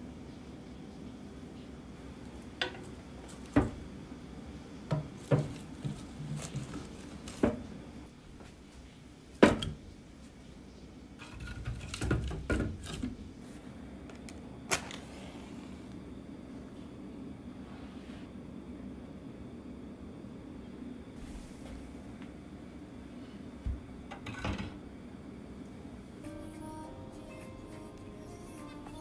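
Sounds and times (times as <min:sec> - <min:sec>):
wood shuffling: 0:04.9 - 0:07.8.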